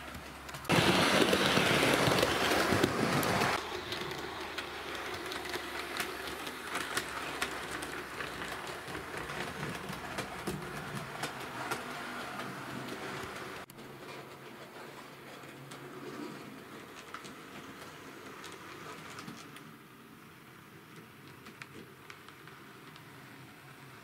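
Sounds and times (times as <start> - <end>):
model train running on track: 0.2 - 24.0.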